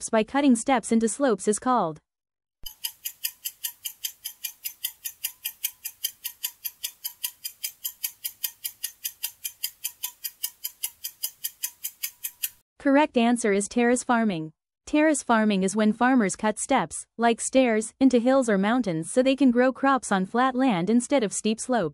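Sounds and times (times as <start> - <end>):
clock ticking rapidly: 2.6 - 12.6.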